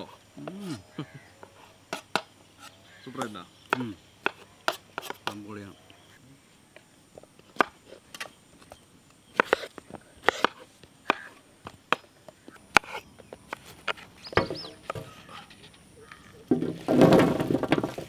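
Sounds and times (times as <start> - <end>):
knives chopping on wooden boards: 1.9 - 5.6, 7.6 - 8.3, 9.3 - 12.1.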